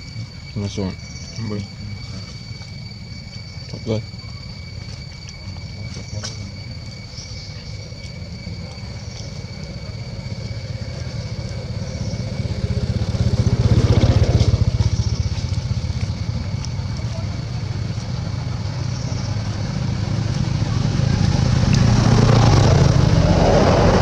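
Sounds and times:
vehicle engine running: 0:09.0 - 0:24.0.

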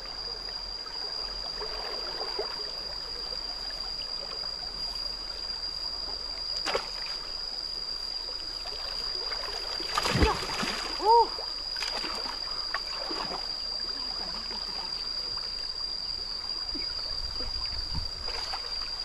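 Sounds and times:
stream water flowing: 0:00.0 - 0:19.0
stick splashing into water: 0:09.9 - 0:10.9.

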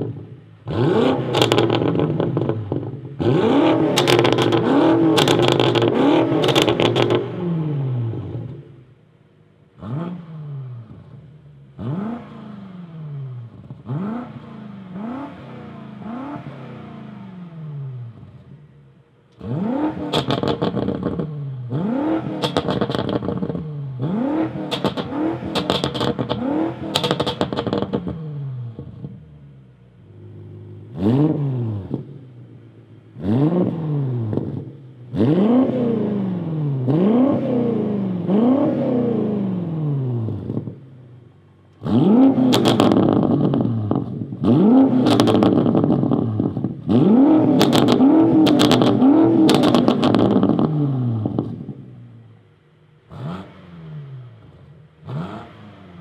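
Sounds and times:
car engine revving: 0:00.0 - 0:09.0, 0:09.7 - 0:56.0
exhaust pops and crackles: 0:01.3 - 0:03.1, 0:03.9 - 0:07.3, 0:20.0 - 0:21.3, 0:22.3 - 0:23.7, 0:24.6 - 0:28.2, 0:41.7 - 0:51.8.

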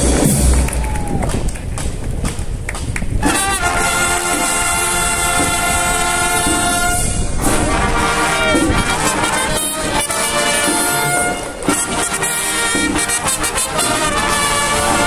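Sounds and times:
brass section playing: 0:03.2 - 0:15.0.

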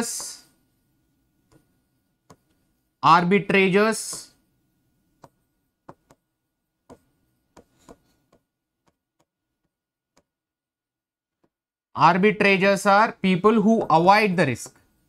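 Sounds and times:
stylus tapping on screen: 0:01.4 - 0:02.7, 0:04.0 - 0:04.4, 0:05.1 - 0:10.4, 0:11.3 - 0:11.6, 0:13.7 - 0:14.9.

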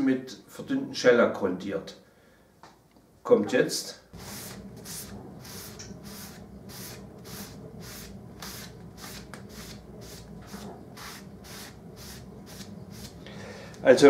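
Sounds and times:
steady low hum: 0:04.0 - 0:14.0
cloth rag rubbing wood: 0:04.2 - 0:13.2.

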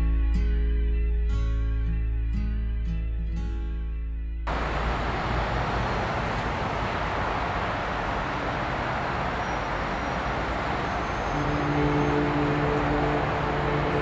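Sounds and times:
distant freight train rumble: 0:04.5 - 0:14.0.

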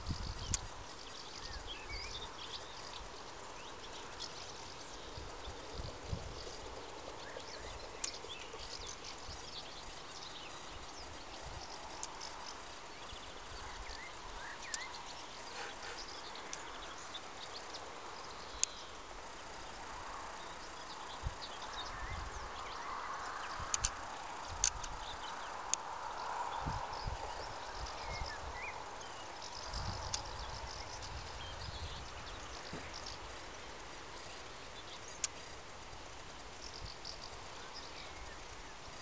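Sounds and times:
swallows twittering: 0:00.1 - 0:19.0
sharp clicks: 0:23.7 - 0:24.0, 0:24.6 - 0:25.0.

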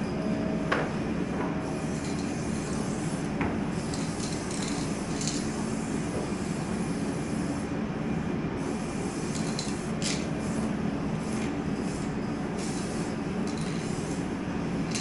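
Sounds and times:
spray paint can hissing: 0:03.8 - 0:05.9, 0:09.0 - 0:10.3, 0:11.3 - 0:14.2.

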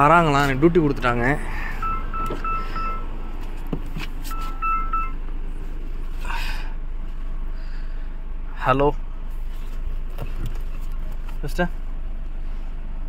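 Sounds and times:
car chime beeping: 0:00.9 - 0:05.3.

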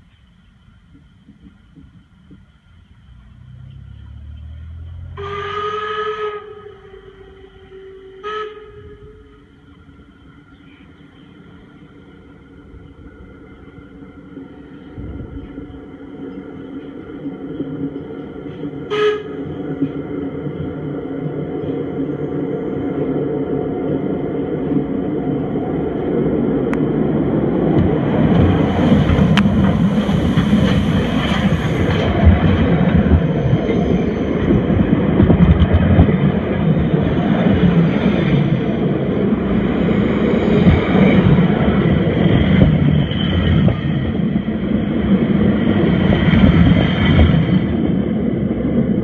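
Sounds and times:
train wheels rumbling overhead: 0:00.0 - 0:49.0
steam hissing: 0:27.9 - 0:32.8.

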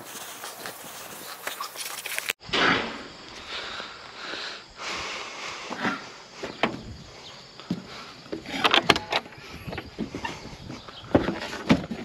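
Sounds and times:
footsteps on gravel and straw: 0:00.0 - 0:02.4.

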